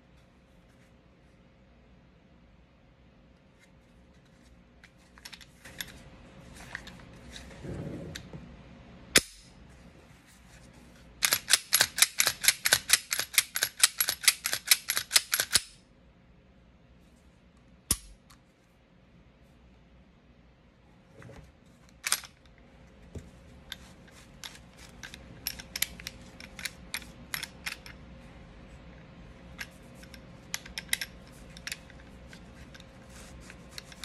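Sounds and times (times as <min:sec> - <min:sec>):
pistol mechanism clicking: 0:09.2 - 0:09.5, 0:11.2 - 0:15.8, 0:17.9 - 0:18.2, 0:22.0 - 0:22.4.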